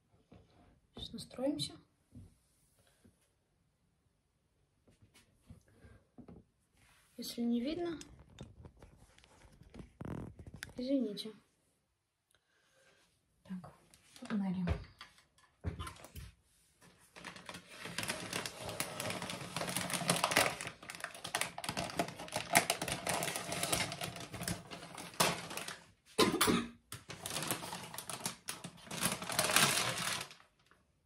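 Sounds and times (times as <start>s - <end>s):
plastic sleeve crinkling: 8.1s - 10.8s, 16.8s - 26.0s, 26.9s - 30.8s.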